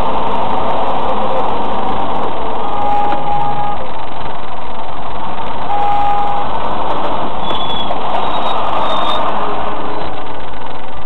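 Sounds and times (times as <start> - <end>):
road and engine noise in car: 0.0 - 11.0
short steady tone: 2.6 - 4.0.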